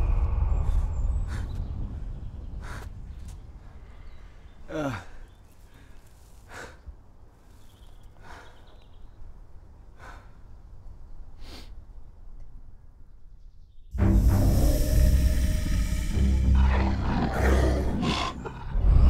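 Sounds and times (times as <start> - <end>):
faint low rumble: 0.0 - 4.7, 13.9 - 19.0
man breathing heavily: 0.0 - 8.9, 9.9 - 10.7, 14.1 - 19.0.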